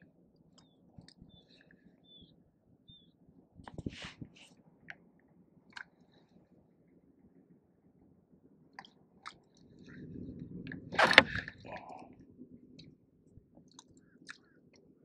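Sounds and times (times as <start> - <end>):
rubbing against microphone: 3.6 - 4.6.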